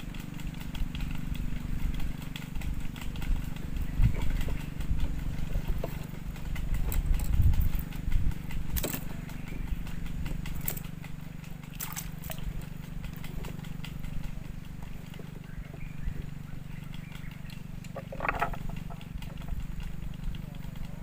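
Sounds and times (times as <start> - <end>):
distant motor humming: 0.0 - 21.0
fishing gear clicks: 11.7 - 13.2, 17.2 - 19.5.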